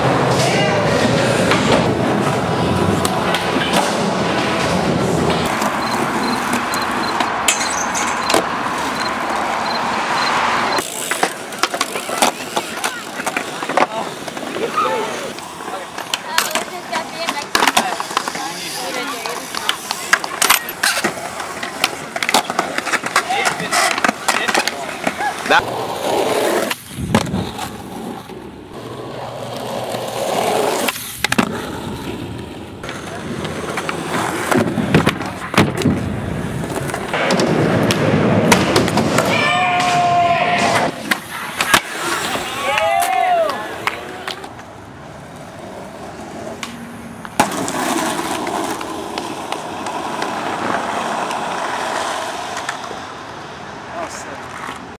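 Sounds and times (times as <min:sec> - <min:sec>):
skateboard clack: 0:00.0 - 0:54.9
skateboard wheels rolling on asphalt: 0:00.0 - 0:54.9
skateboard landing clack: 0:30.8 - 0:44.7, 0:46.5 - 0:51.6.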